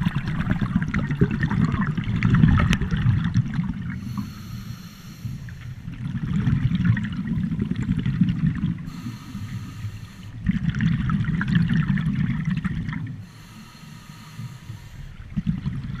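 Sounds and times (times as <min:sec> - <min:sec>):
exhaled bubbles underwater: 0:00.0 - 0:04.7, 0:05.6 - 0:13.3, 0:14.8 - 0:16.0
regulator hiss on inhale: 0:04.0 - 0:05.9, 0:08.9 - 0:10.4, 0:13.2 - 0:15.3.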